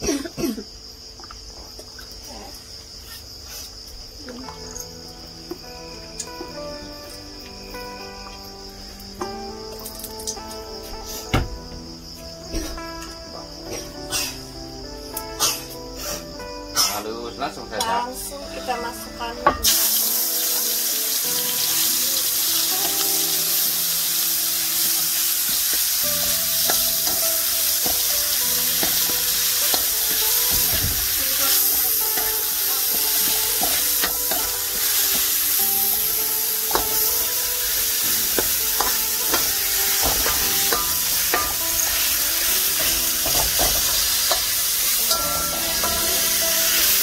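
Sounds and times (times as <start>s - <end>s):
spice paste sizzling in oil: 19.6s - 47.0s.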